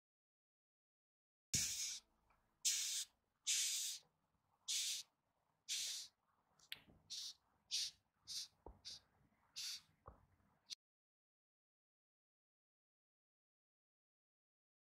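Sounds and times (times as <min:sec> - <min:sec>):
insect hissing bursts: 0:01.6 - 0:02.0, 0:02.7 - 0:04.0, 0:04.7 - 0:05.1, 0:05.7 - 0:06.1, 0:07.1 - 0:09.0, 0:09.6 - 0:09.8.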